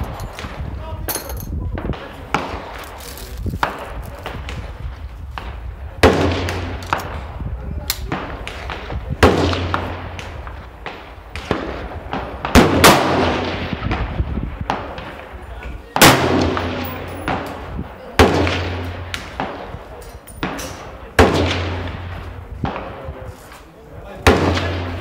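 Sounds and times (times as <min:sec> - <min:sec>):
echoing gunshots: 0:03.6 - 0:07.4, 0:08.0 - 0:23.4, 0:24.1 - 0:25.0.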